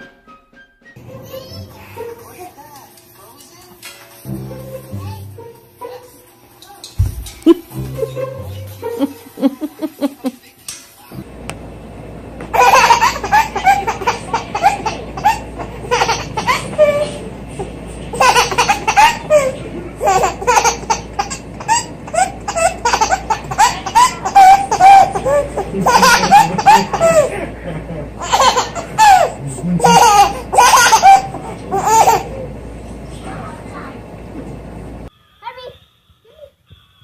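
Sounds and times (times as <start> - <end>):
baby laughing: 7.4 - 10.4, 12.5 - 32.5.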